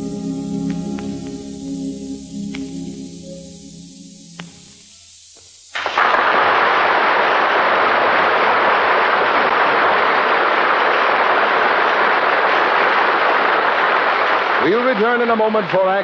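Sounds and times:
audience applauding: 0:05.8 - 0:16.0.

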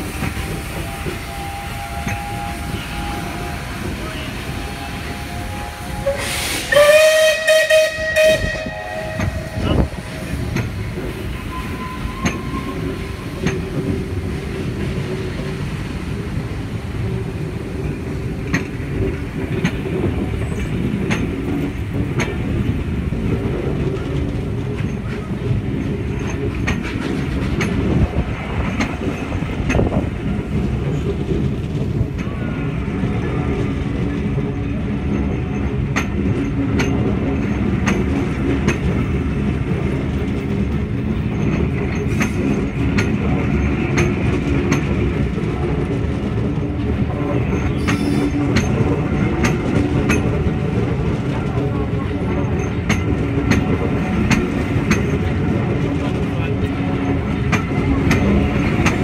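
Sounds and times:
steam locomotive whistle: 0:00.4 - 0:10.2, 0:11.4 - 0:13.2.

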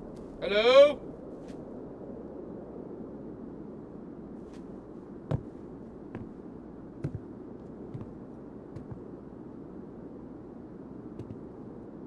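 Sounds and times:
low background rumble: 0:00.0 - 0:12.0
footsteps on wooden steps: 0:05.3 - 0:06.4, 0:07.0 - 0:08.2, 0:08.8 - 0:09.1, 0:11.2 - 0:11.4.

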